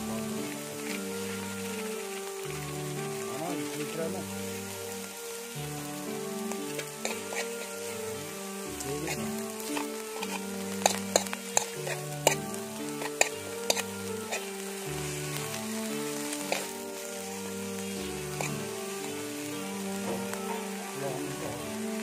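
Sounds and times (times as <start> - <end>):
ants sizzling in a wok: 0.0 - 22.0
metal spoon scraping a wok: 7.0 - 7.6, 9.0 - 12.4, 13.0 - 14.4
spoon tapping a pan: 9.8 - 14.4.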